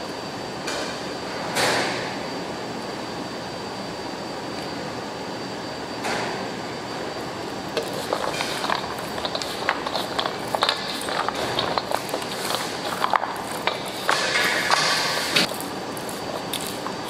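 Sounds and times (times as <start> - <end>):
steady hum: 0.0 - 17.0
almonds clicking and rattling: 7.8 - 17.0.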